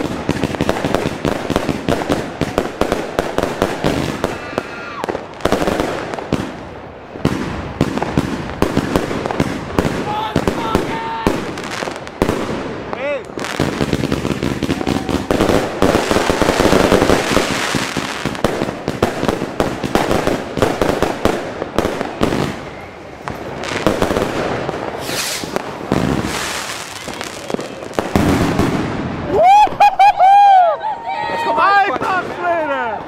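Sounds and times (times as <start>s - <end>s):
fireworks barrage bangs and crackling: 0.0s - 30.1s, 31.2s - 33.0s.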